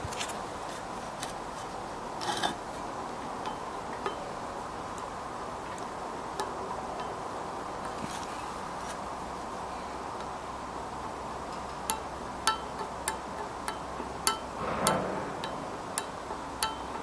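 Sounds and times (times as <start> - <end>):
bearing clicking: 11.4 - 17.0.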